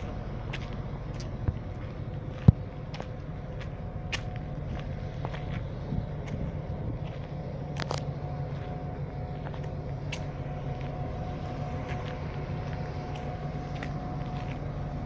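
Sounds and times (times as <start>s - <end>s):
diesel locomotive idling: 0.0s - 15.0s
faint steady tones: 0.0s - 15.0s
footsteps on gravel: 0.0s - 15.0s.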